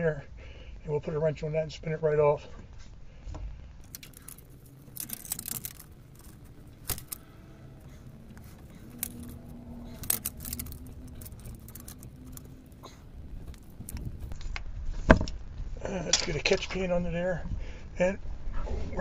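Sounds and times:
light metallic jangling: 3.8s - 14.4s.

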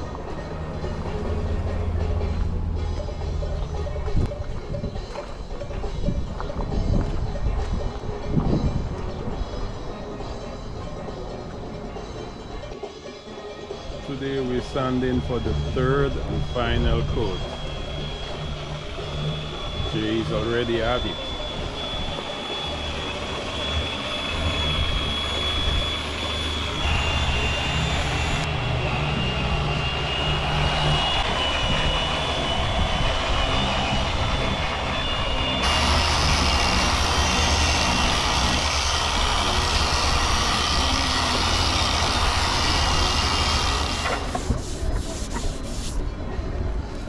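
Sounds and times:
orbital sanders whining: 14.0s - 46.1s
sanding pad hissing on paint: 14.6s - 46.1s.

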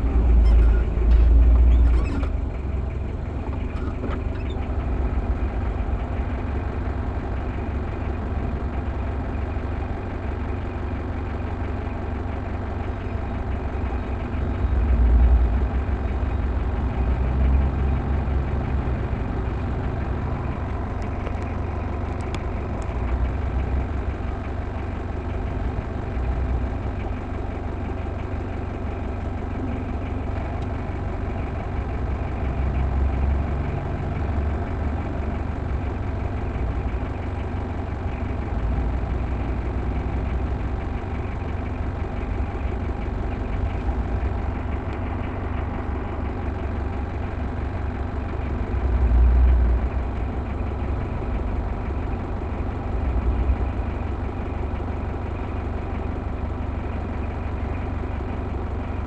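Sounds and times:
vehicle engine idling: 0.0s - 59.0s.

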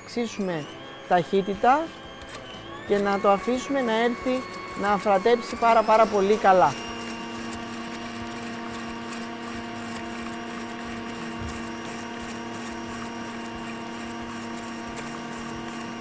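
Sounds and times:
stand mixer motor humming: 0.0s - 16.0s
whisk beating eggs: 0.0s - 16.0s.

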